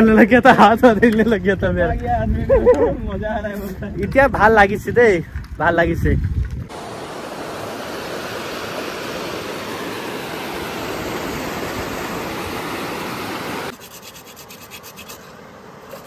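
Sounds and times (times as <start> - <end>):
water rushing over a dam spillway: 6.7 - 13.7.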